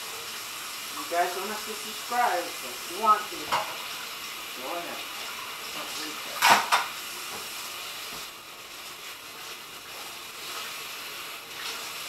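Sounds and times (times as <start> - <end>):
stir-fry sizzling in pan: 0.0 - 12.0.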